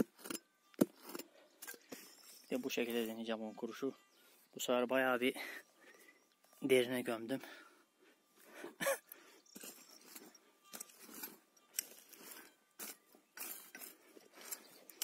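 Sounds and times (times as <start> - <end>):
digging tool scraping soil: 0.0 - 3.8, 9.4 - 15.0.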